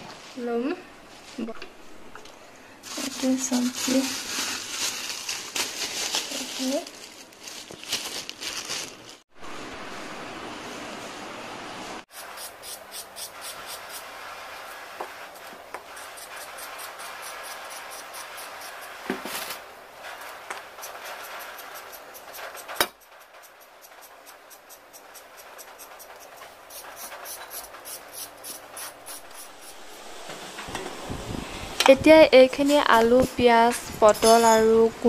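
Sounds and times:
steady hiss: 11.7 - 34.9.

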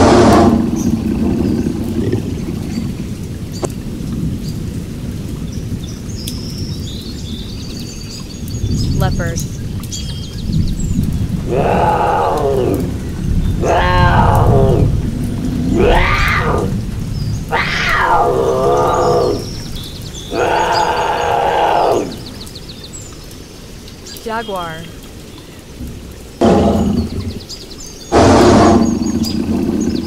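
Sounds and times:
leopard calling: 13.6 - 15.0, 15.7 - 16.8, 20.2 - 22.1.

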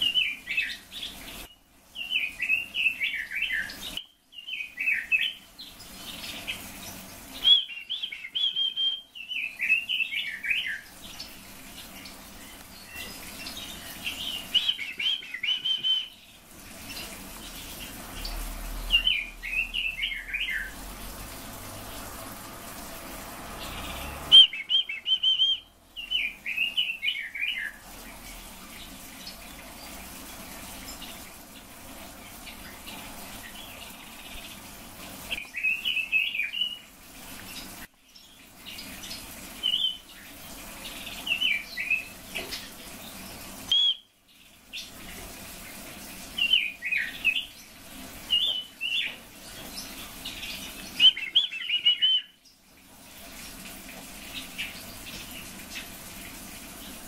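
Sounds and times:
songbirds singing warbled phrases: 0.0 - 21.0, 23.6 - 27.8, 43.7 - 44.1, 49.8 - 52.5.

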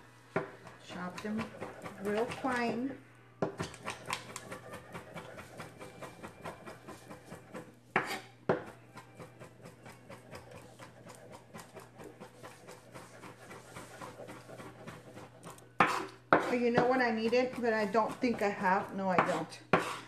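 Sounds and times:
knife chopping on wooden board: 0.3 - 2.8, 3.4 - 20.0.

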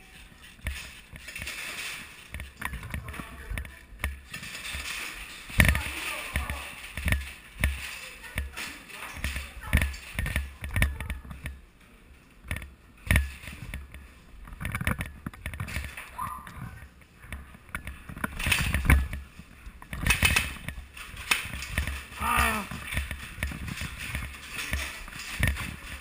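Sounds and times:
rustling: 0.0 - 26.0
footsteps and gear knocking: 12.4 - 26.0.

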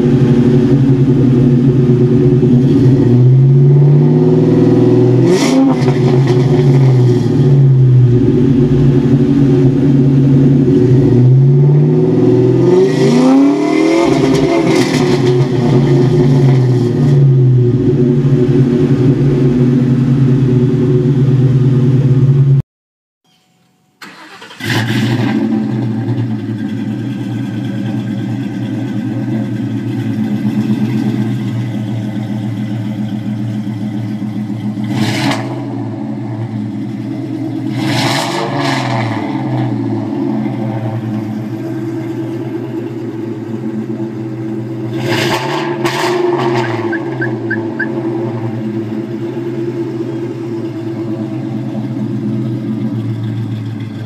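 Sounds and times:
car engine idling: 0.0 - 12.8, 15.2 - 22.6, 24.0 - 38.0, 39.1 - 45.0, 46.6 - 54.0
car engine revving: 0.0 - 22.6, 24.0 - 54.0
throttle blips: 46.9 - 48.0.

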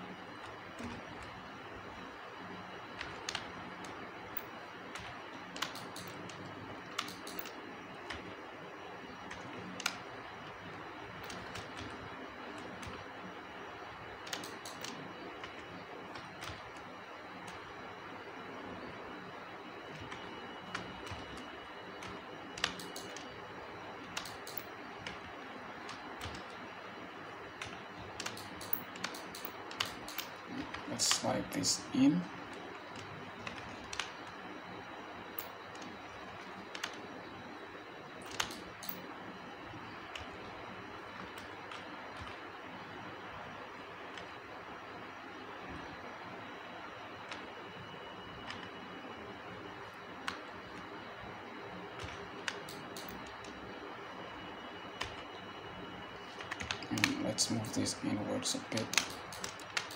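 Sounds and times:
faint hiss and low hum: 0.0 - 59.9
keyboard and mouse clicks: 3.0 - 4.0, 4.9 - 8.4, 9.3 - 10.0, 11.2 - 12.0, 14.2 - 16.8, 19.9 - 23.3, 24.1 - 26.6, 27.6 - 31.2, 32.5 - 34.3, 36.7 - 37.0, 38.2 - 39.0, 40.1 - 40.4, 41.2 - 42.4, 44.1 - 44.3, 48.4 - 48.7, 52.0 - 53.6, 56.3 - 57.3, 58.7 - 59.9.

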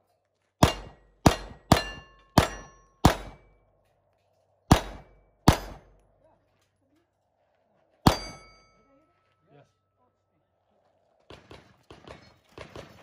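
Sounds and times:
handgun shots: 0.6 - 3.5, 4.7 - 6.0
steel plates ringing: 0.6 - 3.5, 8.1 - 9.1.

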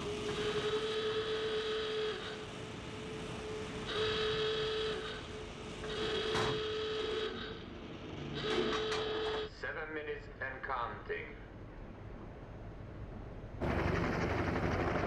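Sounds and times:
alarm horn buzzing blasts: 0.0 - 2.5, 3.6 - 7.6, 8.4 - 9.5.

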